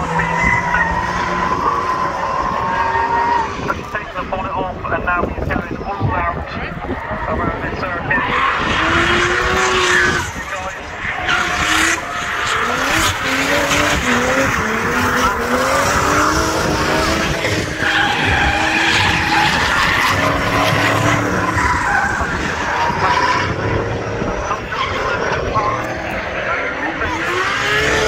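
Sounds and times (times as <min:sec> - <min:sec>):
car engine revving hard: 0:08.2 - 0:28.0.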